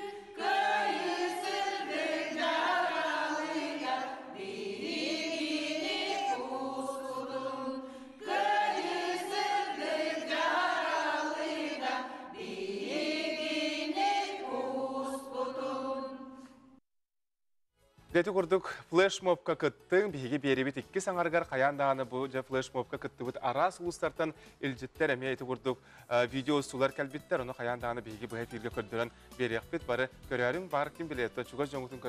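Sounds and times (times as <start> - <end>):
group of voices singing: 0.0 - 16.7.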